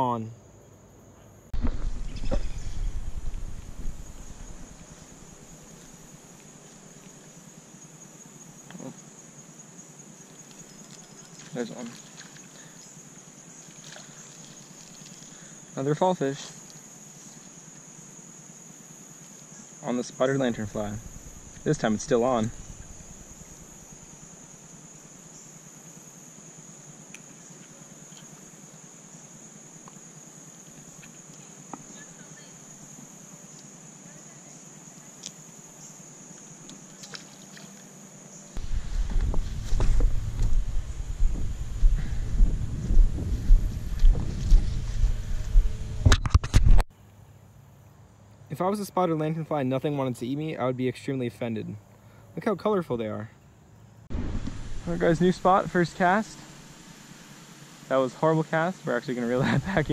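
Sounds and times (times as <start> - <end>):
crickets trilling: 0.0 - 59.9
insects chirring: 0.0 - 59.9
low rumble: 1.6 - 5.5, 20.5 - 24.1, 38.6 - 46.2, 54.1 - 56.8.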